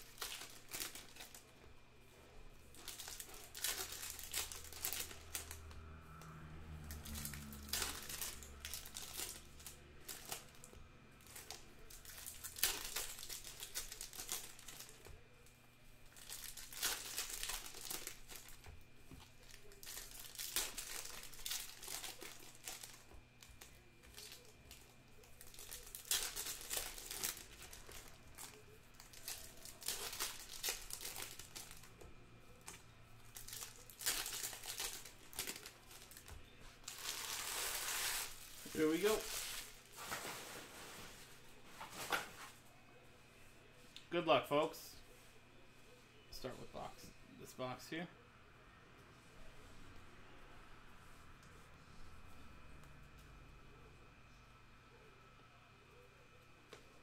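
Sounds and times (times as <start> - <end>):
card pack wrappers crinkling and tearing: 0.0 - 1.5, 2.7 - 40.5.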